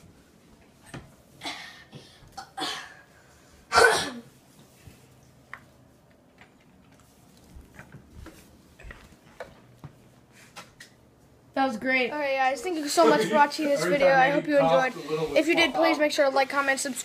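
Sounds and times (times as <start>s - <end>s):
person coughing: 3.7s - 4.3s.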